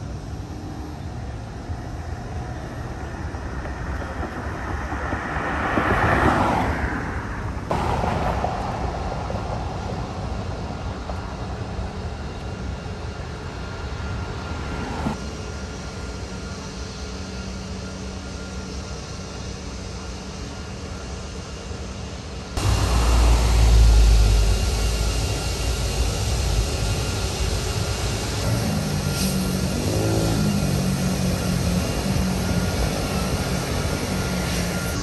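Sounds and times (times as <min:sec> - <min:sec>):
city traffic hum: 0:00.0 - 0:35.0
vehicle passing close by: 0:22.6 - 0:25.8.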